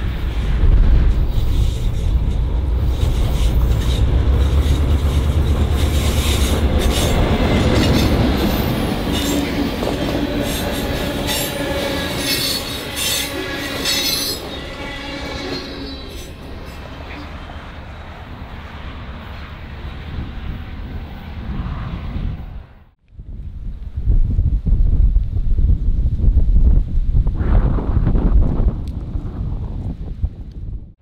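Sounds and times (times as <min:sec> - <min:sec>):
train wheel clatter: 0:00.0 - 0:14.6
diesel locomotive engines: 0:00.0 - 0:23.0
train wheel squeal: 0:02.8 - 0:17.7.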